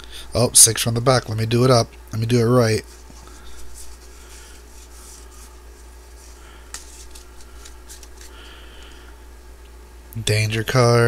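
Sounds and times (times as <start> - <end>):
trading cards rubbing and rustling: 2.6 - 9.0.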